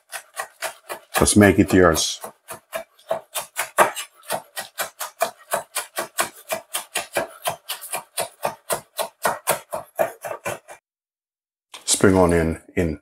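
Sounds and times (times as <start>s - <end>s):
knife chopping on cutting board: 0.0s - 10.8s.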